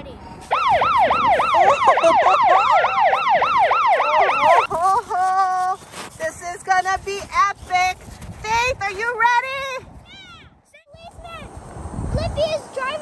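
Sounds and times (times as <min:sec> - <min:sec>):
toy police siren wailing: 0:00.5 - 0:04.7
stepped beeping tone: 0:00.6 - 0:04.7.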